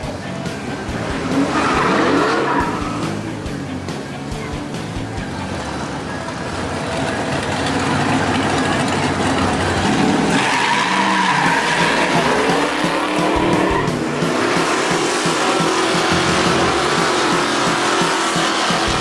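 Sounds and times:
car engine revving hard: 0.5 - 3.4, 7.9 - 19.0
tyres squealing: 0.7 - 3.4, 10.0 - 19.0.

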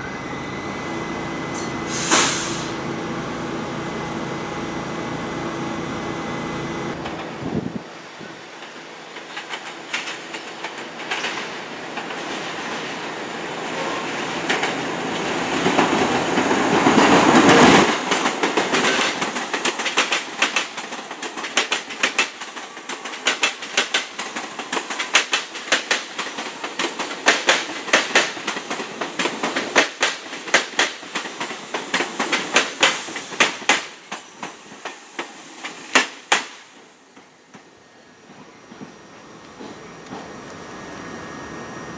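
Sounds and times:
subway train rumble: 0.0 - 41.9
train wheels clickety-clack: 8.5 - 13.0, 14.3 - 40.6.

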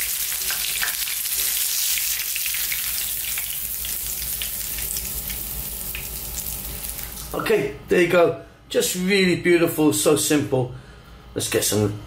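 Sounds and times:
oil sizzling in a frying pan: 0.0 - 7.4.

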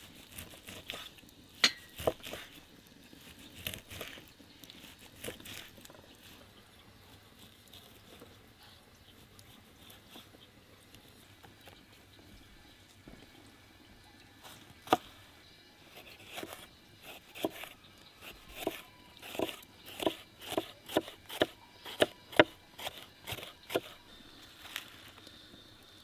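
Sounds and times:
knife chopping food on a board: 1.6 - 2.5, 16.1 - 24.0.

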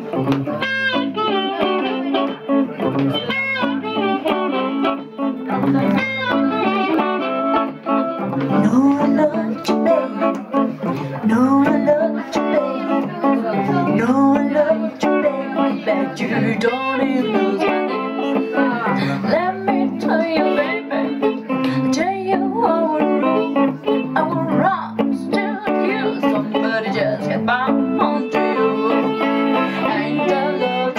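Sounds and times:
electric guitar playing blues: 0.0 - 30.9
woman singing: 8.3 - 30.9.

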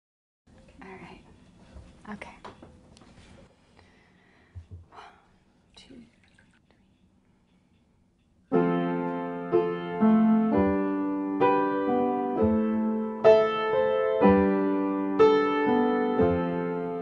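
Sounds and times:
upright piano chords: 8.5 - 17.0.

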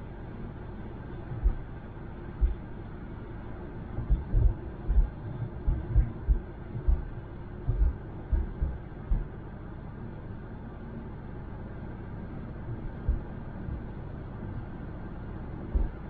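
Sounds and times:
dull low thumps: 1.3 - 1.7, 2.4 - 2.7, 4.0 - 9.4, 15.7 - 16.0.

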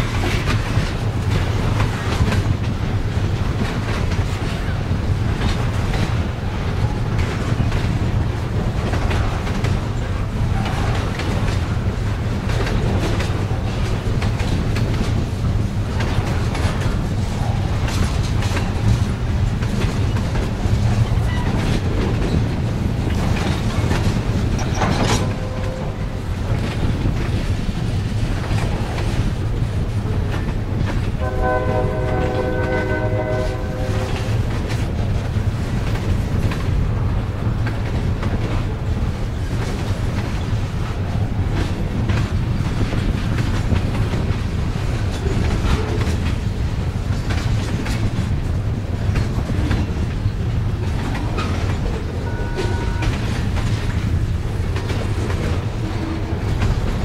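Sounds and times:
freight train rumbling past: 0.0 - 57.0
wheels clicking over rail joints: 0.0 - 57.0
train horn blast: 25.2 - 26.2, 31.2 - 34.4, 52.2 - 53.3.

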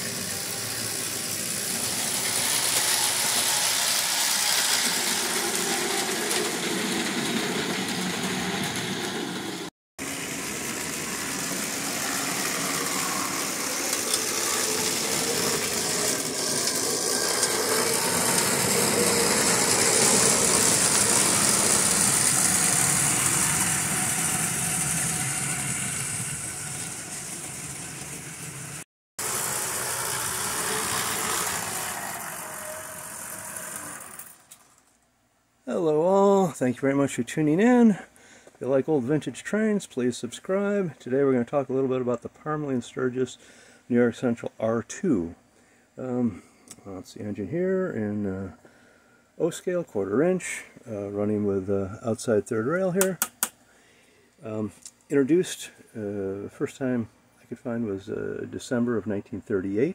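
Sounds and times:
model train whirring and rattling: 0.0 - 35.0.

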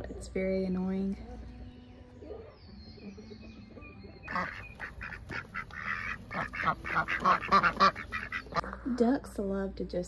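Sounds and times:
ducks quacking: 4.2 - 8.8.

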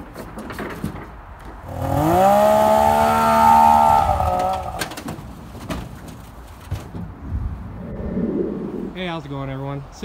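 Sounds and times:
snowmobile engine revving: 1.8 - 4.7.

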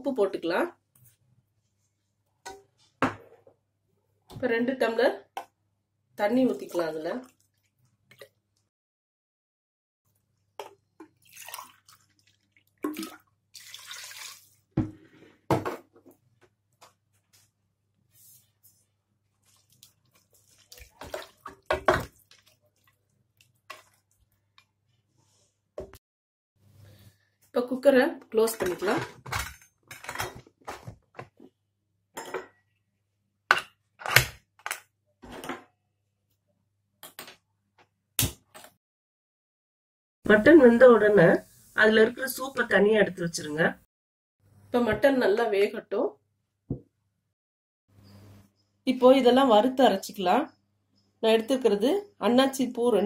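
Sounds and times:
water pouring and splashing: 10.6 - 14.8, 19.4 - 24.7.

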